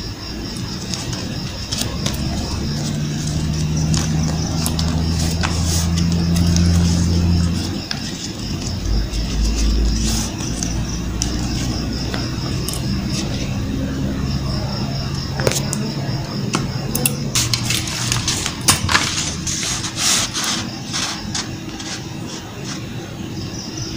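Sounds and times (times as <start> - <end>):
low droning hum: 0.0 - 23.9
paper being folded: 0.5 - 13.5, 17.4 - 23.1.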